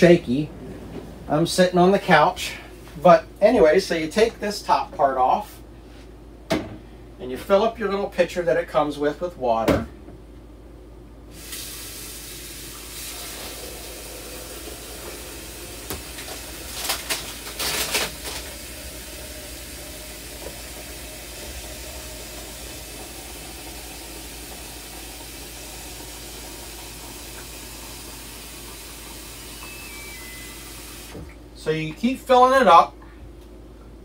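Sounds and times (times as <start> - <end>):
tap water running into pitcher: 11.4 - 31.3.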